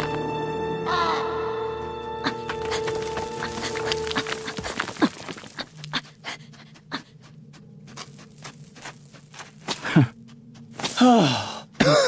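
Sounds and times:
hard breathing: 2.2s - 7.4s
scratching and scraping on earth: 2.3s - 11.2s
grunt of effort: 10.9s - 12.0s.

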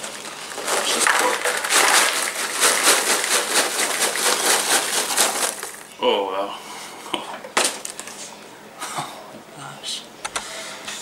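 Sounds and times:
bag rustling: 0.0s - 5.9s
popcorn pouring into plastic bowl: 0.0s - 5.9s.

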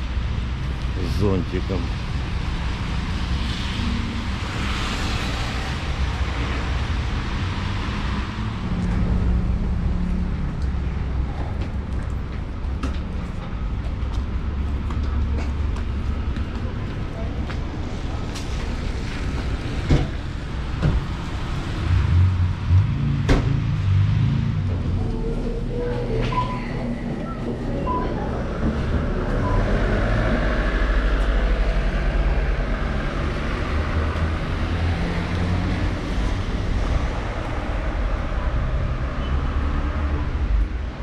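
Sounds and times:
low traffic rumble: 0.0s - 41.0s.

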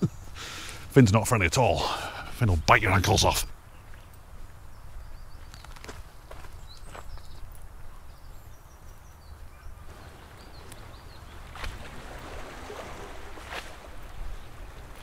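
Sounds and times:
footsteps on tarmac: 3.8s - 7.9s.

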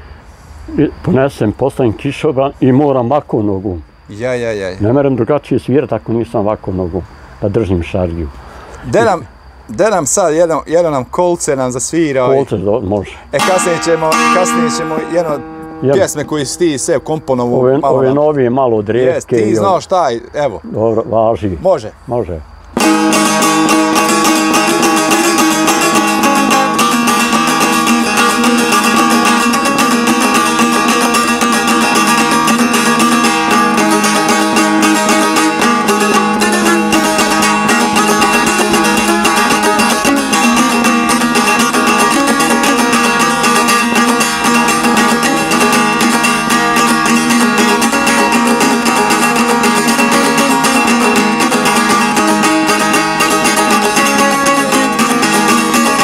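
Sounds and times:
long-necked lute folk tune: 8.4s - 9.9s, 11.8s - 20.1s, 22.8s - 56.0s.

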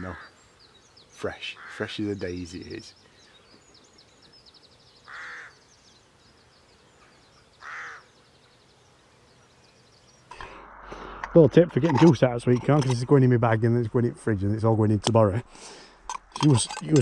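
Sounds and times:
crow cawing: 0.0s - 0.4s, 1.5s - 1.9s, 5.0s - 5.6s, 7.6s - 8.1s
small birds twittering: 0.0s - 11.2s.

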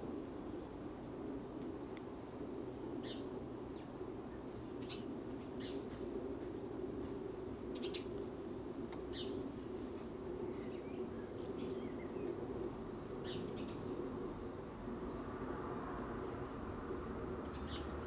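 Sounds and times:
low background hum: 0.0s - 18.0s
birds chirping: 3.0s - 9.5s, 17.5s - 18.0s.

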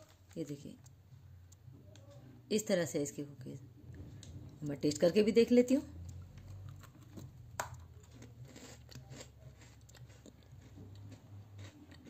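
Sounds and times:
crunching and chewing cookie: 5.9s - 12.0s.

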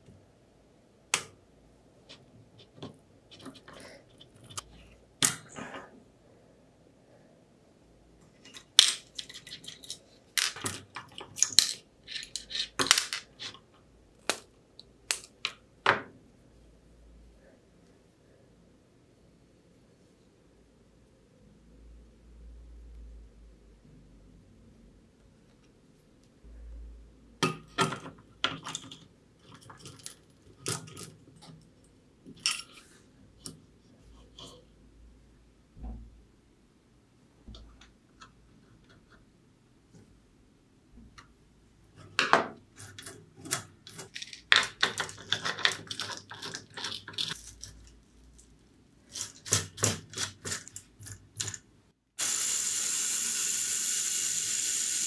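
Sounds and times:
metal parts clinking and knocking: 8.4s - 13.6s, 27.6s - 31.6s, 49.1s - 51.7s.

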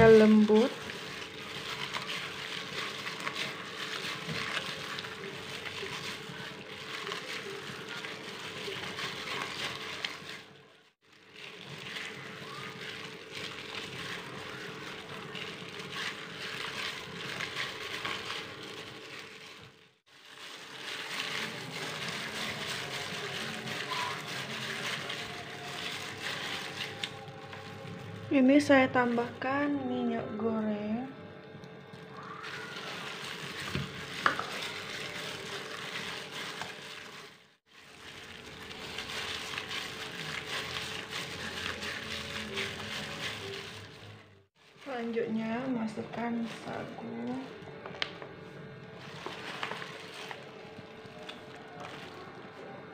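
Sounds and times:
wet squelching of fish paste: 0.0s - 27.6s, 32.4s - 44.8s
plastic glove rustling: 0.0s - 30.1s, 31.7s - 52.9s.

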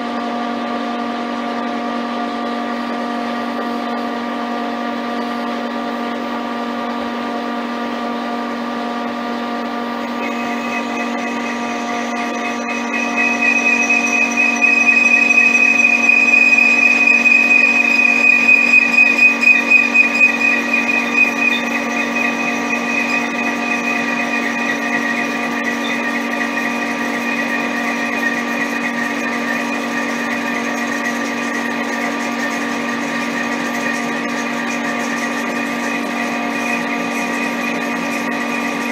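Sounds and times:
lathe motor hum: 3.4s - 38.9s
high whine from cutting: 8.6s - 38.9s.

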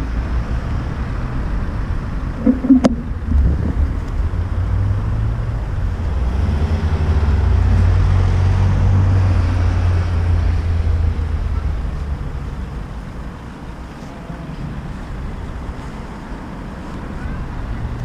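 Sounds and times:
low rumble of bicycle microphone: 1.2s - 6.2s.

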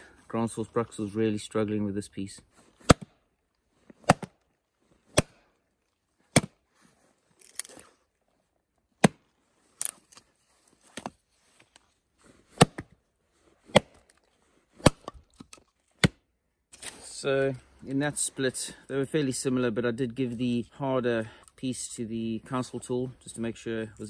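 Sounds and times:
axe chopping wood: 2.8s - 3.2s, 4.0s - 4.4s, 5.0s - 5.5s, 6.2s - 6.6s, 9.0s - 9.3s, 12.5s - 13.0s, 13.6s - 14.1s, 14.8s - 15.2s, 16.0s - 16.3s.

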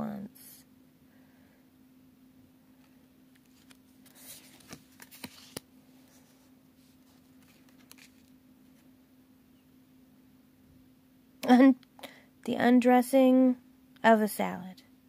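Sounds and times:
faint steady hum: 0.0s - 15.0s
cards clicking and rustling: 3.4s - 5.7s, 7.2s - 8.8s.

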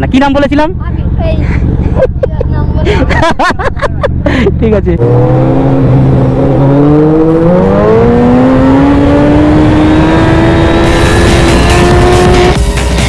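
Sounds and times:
motorcycle engine revving: 4.1s - 12.7s.

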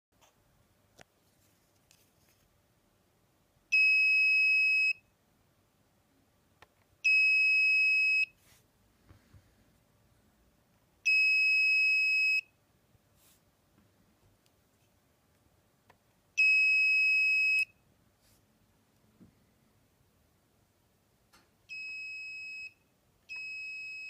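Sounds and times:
high-pitched buzzer beeps: 21.7s - 24.0s.

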